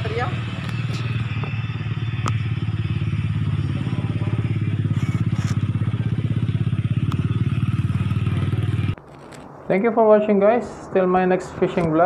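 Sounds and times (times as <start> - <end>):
small engine idling: 0.0 - 9.0.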